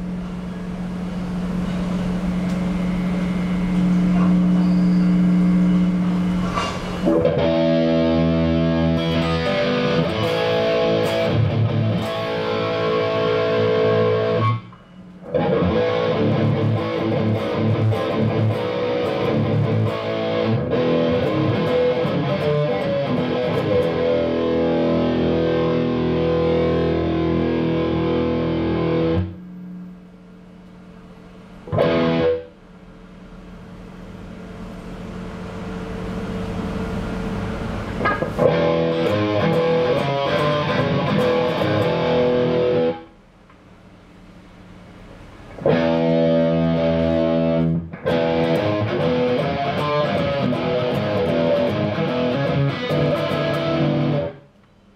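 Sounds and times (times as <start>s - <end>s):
distorted electric guitar: 7.0s - 29.4s, 31.6s - 32.5s, 38.0s - 43.1s, 45.5s - 54.4s.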